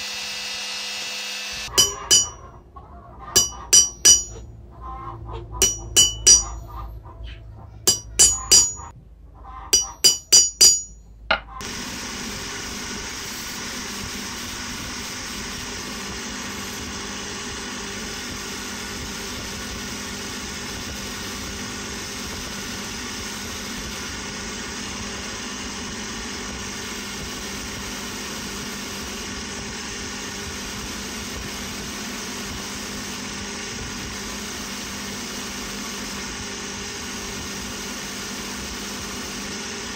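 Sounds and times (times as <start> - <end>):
bench grinder humming: 0.0 - 2.4
hammer striking steel punch: 1.7 - 2.4, 3.4 - 4.4, 5.6 - 6.6, 7.9 - 8.9, 9.8 - 11.5.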